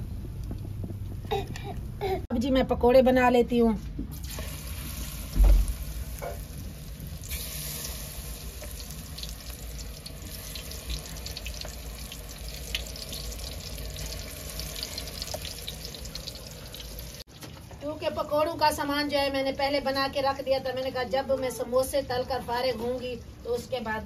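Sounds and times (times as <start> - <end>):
food sizzling in hot oil: 4.2 - 17.3
low thump: 5.3 - 5.8.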